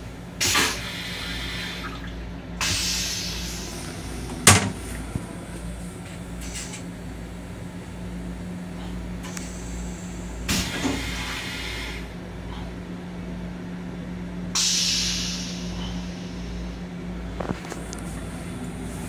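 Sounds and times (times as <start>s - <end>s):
train car hum and rumble: 0.0s - 19.0s
hiss: 2.6s - 4.2s, 9.2s - 12.1s, 14.6s - 16.8s.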